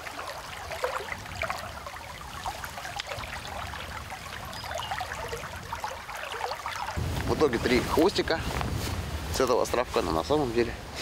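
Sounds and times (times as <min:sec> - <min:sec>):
small water splashes: 0:00.0 - 0:08.2
river water trickling: 0:00.0 - 0:10.6.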